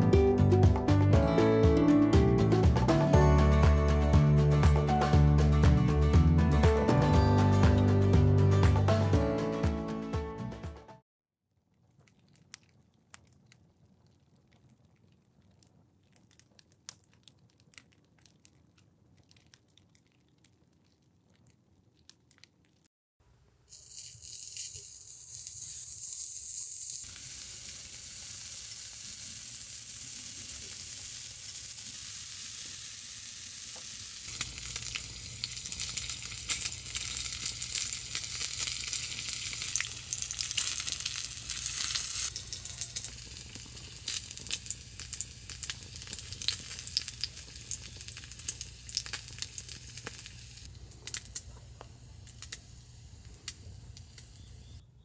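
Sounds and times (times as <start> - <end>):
small fire crackling: 11.7 - 22.8, 23.7 - 54.8
pork sizzling in a pan: 23.7 - 54.8.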